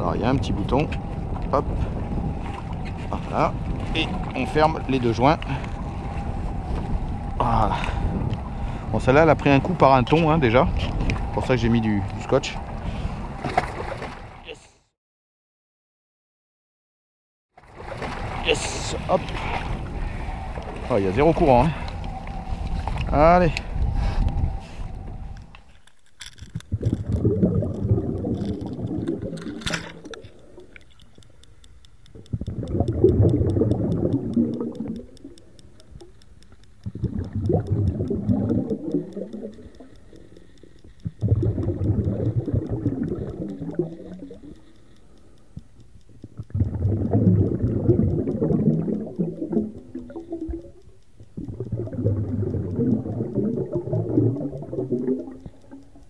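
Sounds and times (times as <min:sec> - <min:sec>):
muffled underwater water rush: 0:00.0 - 0:14.5, 0:17.6 - 0:25.7, 0:26.6 - 0:31.5, 0:32.1 - 0:36.2, 0:36.8 - 0:44.8, 0:46.2 - 0:56.0
sharp clicks: 0:25.3 - 0:56.0.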